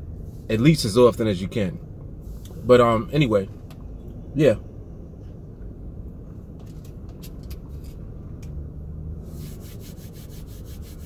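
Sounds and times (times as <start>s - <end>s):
low car interior hum: 0.0s - 11.0s
hands rubbing together: 9.3s - 11.0s.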